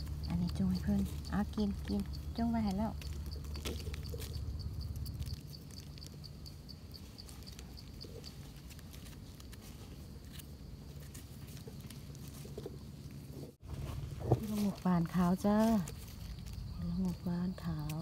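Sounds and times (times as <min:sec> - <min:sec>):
regular high ticking: 0:00.0 - 0:08.8
knife scraping soil: 0:06.9 - 0:18.0.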